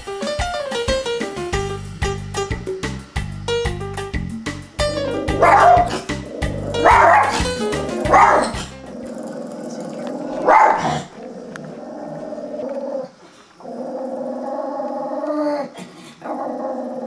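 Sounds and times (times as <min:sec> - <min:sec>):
music with low beat: 0:00.0 - 0:09.0
dog growling: 0:04.9 - 0:17.0
dog barking: 0:05.2 - 0:08.8, 0:10.4 - 0:11.1.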